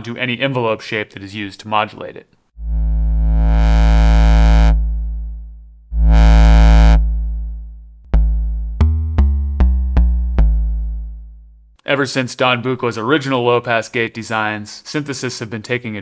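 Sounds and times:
long low synthesizer notes: 0:02.6 - 0:11.7
short plucked synthesizer notes: 0:03.6 - 0:11.7.

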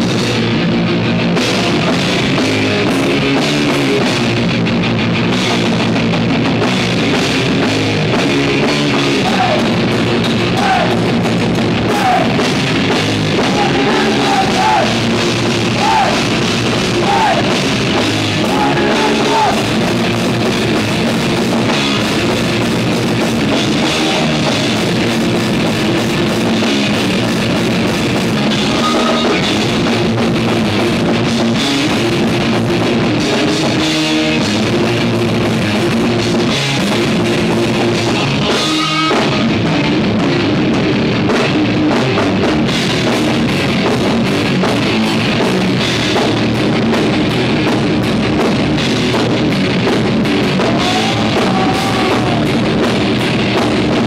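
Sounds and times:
live thrash metal band: 0:00.0 - 0:54.0
bending high guitar notes: 0:28.0 - 0:30.3.

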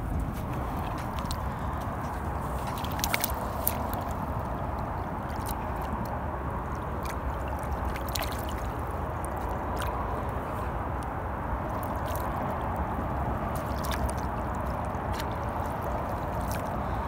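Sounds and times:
water sloshing and gurgling: 0:00.0 - 0:17.0
small splashes and drips: 0:00.2 - 0:17.0.

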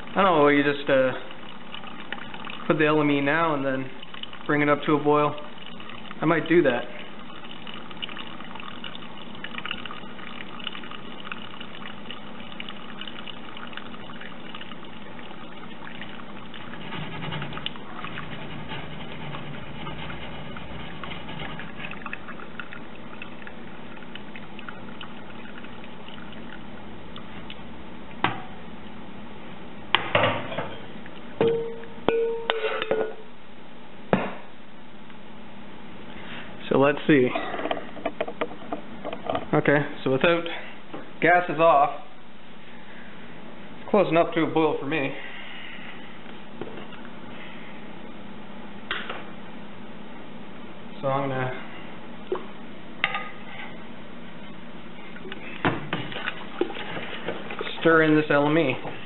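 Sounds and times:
liquid dripping and trickling: 0:00.0 - 0:27.6, 0:55.1 - 0:59.0.

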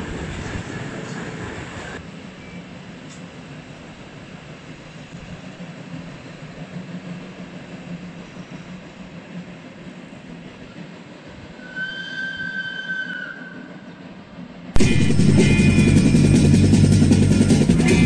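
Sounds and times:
steam locomotive rumbling: 0:00.0 - 0:18.0
high-pitched squeal: 0:11.6 - 0:13.8, 0:14.8 - 0:18.0.

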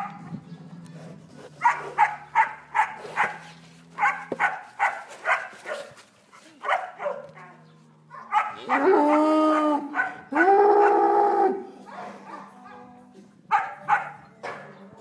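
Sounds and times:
dog barking: 0:01.6 - 0:03.4, 0:04.0 - 0:06.0, 0:06.6 - 0:11.0, 0:11.9 - 0:12.8, 0:13.5 - 0:14.8.

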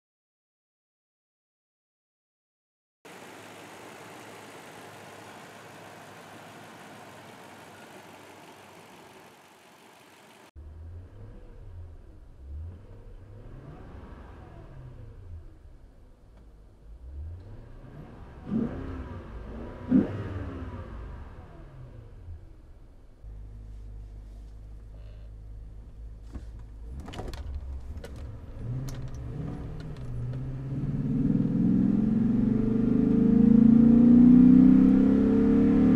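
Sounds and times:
truck engine idling: 0:03.1 - 0:10.5
truck engine rumble: 0:03.1 - 0:10.5, 0:22.6 - 0:32.4
clicks and rattles in cab: 0:26.2 - 0:30.5.

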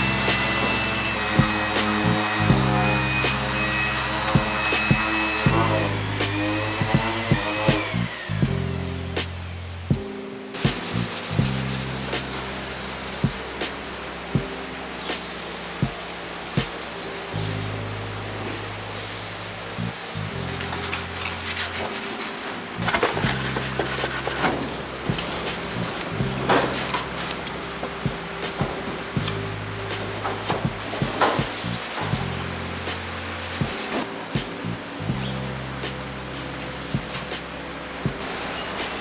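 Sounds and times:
hand sanding rasping strokes: 0:00.0 - 0:08.4, 0:10.6 - 0:14.2, 0:15.1 - 0:17.7, 0:18.3 - 0:29.3, 0:29.9 - 0:34.9
lo-fi music with bass: 0:00.0 - 0:39.0.

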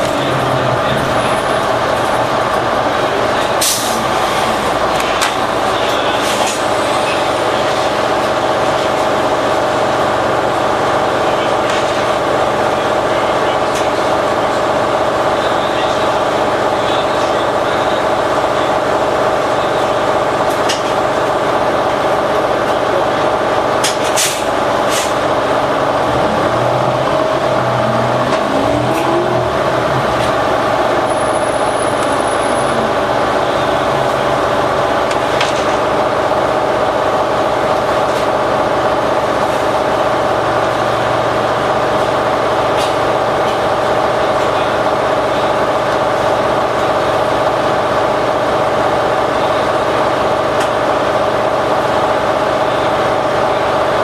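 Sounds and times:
bus engine: 0:00.0 - 0:54.0
high whine: 0:24.6 - 0:36.1.

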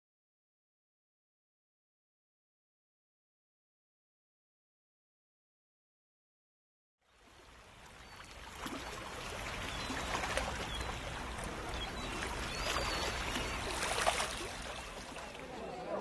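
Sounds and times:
steady rush like flowing water: 0:07.0 - 0:16.0.

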